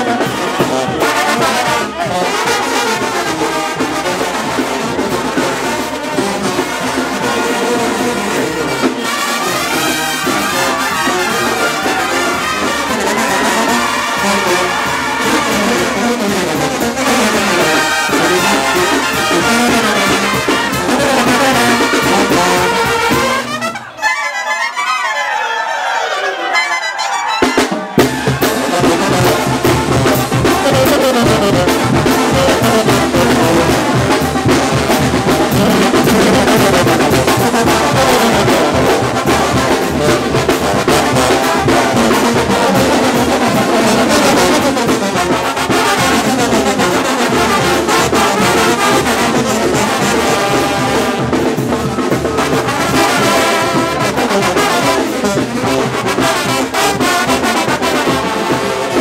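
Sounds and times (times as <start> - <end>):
brass band playing loudly: 0.0 - 59.0
trumpets: 0.0 - 59.0
drum kit with cymbals: 27.4 - 59.0.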